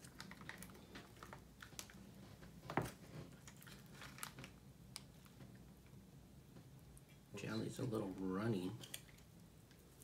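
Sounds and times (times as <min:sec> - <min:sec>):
foil packet crinkling: 0:00.0 - 0:02.0, 0:03.4 - 0:05.3
foil packet tearing: 0:03.7 - 0:04.6.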